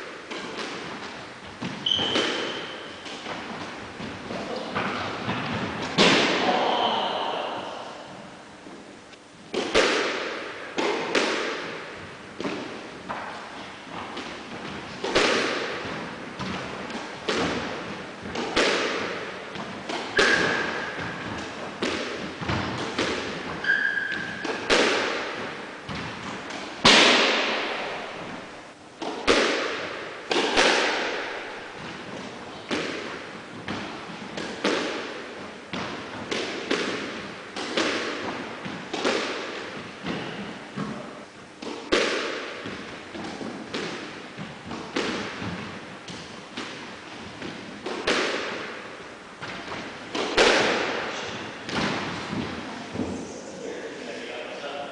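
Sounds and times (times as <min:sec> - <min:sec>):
squash ball struck by rackets: 0:00.0 - 0:08.1, 0:09.5 - 0:53.2.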